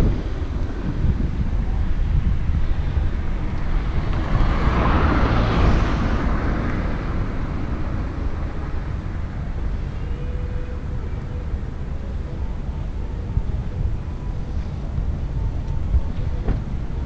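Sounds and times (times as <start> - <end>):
vehicle passing: 0.0 - 17.0
wind rumble on microphone: 0.0 - 17.0.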